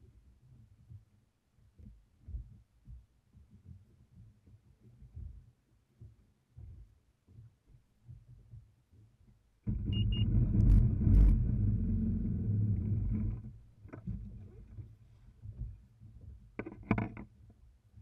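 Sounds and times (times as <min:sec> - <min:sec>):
faint low thumps: 0:00.7 - 0:16.6
jet ski engine running: 0:09.7 - 0:13.6
short high beeps: 0:09.9 - 0:10.3.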